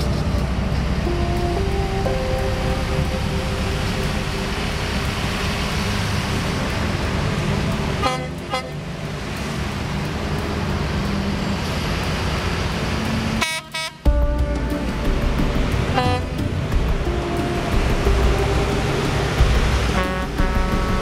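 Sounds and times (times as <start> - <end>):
trucks driving past rumbling: 0.0 - 21.0
truck horn toots: 8.0 - 8.8, 13.4 - 14.4, 15.9 - 16.5, 19.9 - 21.0.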